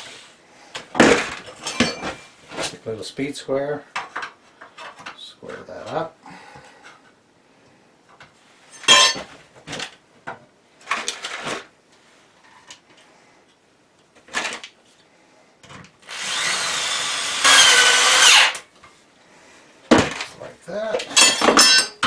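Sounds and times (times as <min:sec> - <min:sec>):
power drill whining on metal: 0:16.0 - 0:18.6
metal parts clanking: 0:20.9 - 0:22.0.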